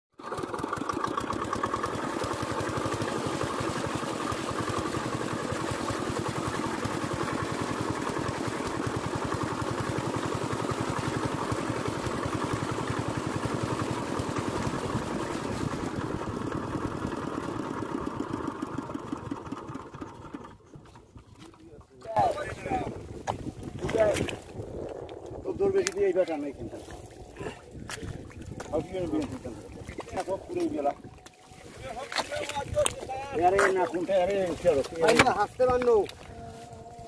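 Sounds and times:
small engine running: 0:00.1 - 0:37.0
water discharging through pipe: 0:00.2 - 0:20.5.

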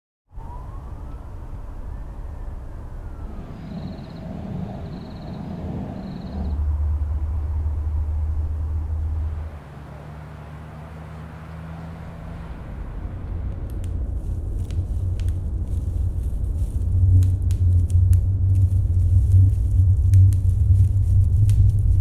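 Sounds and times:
deep steady rumble: 0:00.4 - 0:22.0
gliding faint tone: 0:01.2 - 0:10.2.

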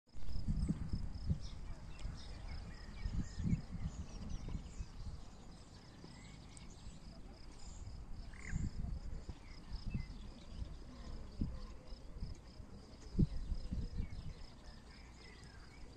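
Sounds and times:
wind gusting on microphone: 0:00.1 - 0:05.7, 0:07.8 - 0:14.7
bird chirps: 0:00.6 - 0:15.9.

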